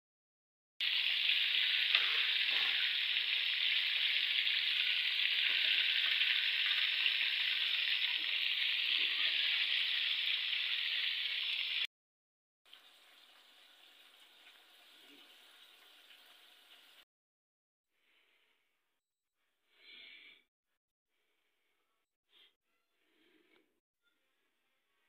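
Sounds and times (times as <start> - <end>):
chicken deep-frying in oil: 0.8 - 11.9, 12.7 - 17.0.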